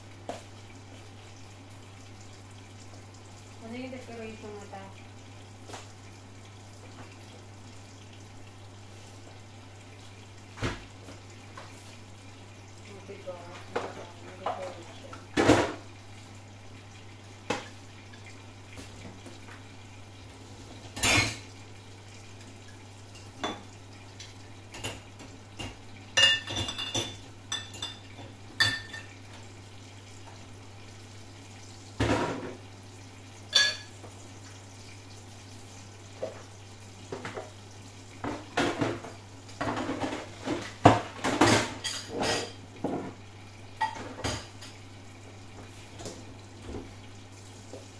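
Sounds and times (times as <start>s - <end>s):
dishes and cutlery clinking: 25.6s - 29.2s, 33.5s - 34.0s, 40.9s - 43.1s.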